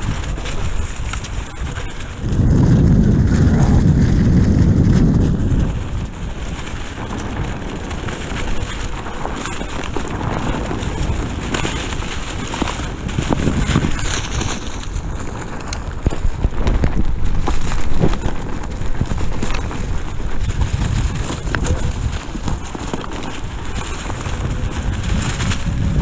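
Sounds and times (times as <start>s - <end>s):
low wind buffeting: 0.0s - 26.0s
wind rushing over microphone: 0.0s - 26.0s.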